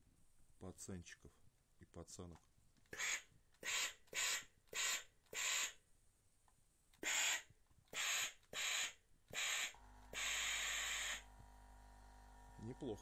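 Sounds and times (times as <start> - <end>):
water pump humming: 9.8 - 13.0.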